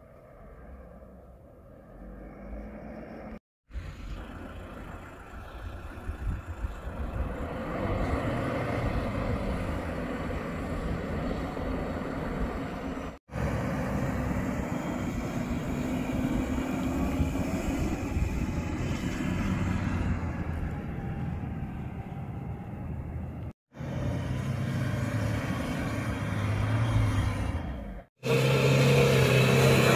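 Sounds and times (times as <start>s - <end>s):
car engine running under load: 3.7s - 19.1s.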